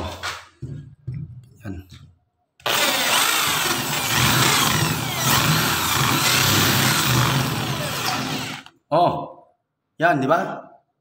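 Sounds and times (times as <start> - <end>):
cordless drill cutting into board: 2.6 - 8.7.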